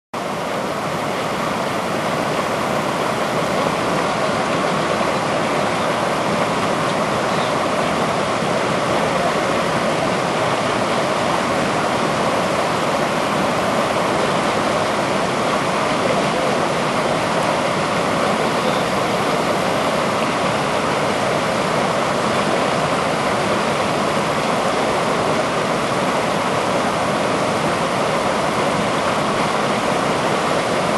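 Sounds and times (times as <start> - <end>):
river water rushing: 0.2 - 30.9.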